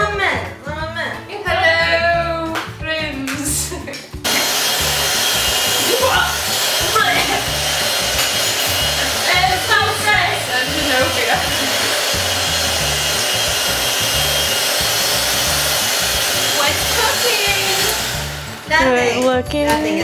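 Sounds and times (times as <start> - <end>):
background music: 0.0 - 20.0
electric hand mixer running: 4.2 - 19.2.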